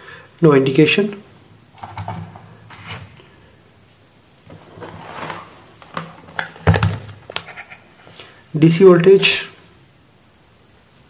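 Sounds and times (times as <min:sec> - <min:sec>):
cables scraping across bench: 0:04.5 - 0:05.9.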